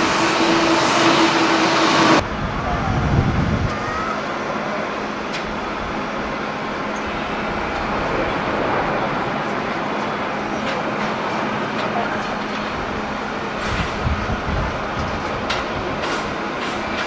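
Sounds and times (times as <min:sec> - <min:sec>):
jet engines roaring: 0:00.0 - 0:17.0
wind buffeting microphone: 0:02.0 - 0:04.5, 0:12.6 - 0:17.0.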